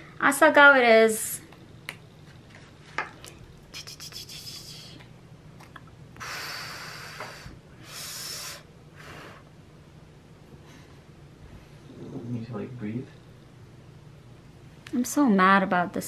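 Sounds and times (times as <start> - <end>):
soft breaths: 6.2 - 9.6, 10.4 - 12.5.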